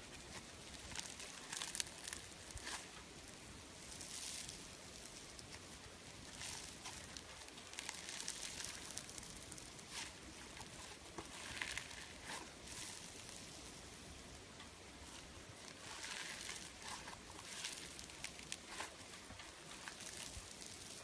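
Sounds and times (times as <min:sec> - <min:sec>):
slime crackling and popping: 0:00.1 - 0:21.0.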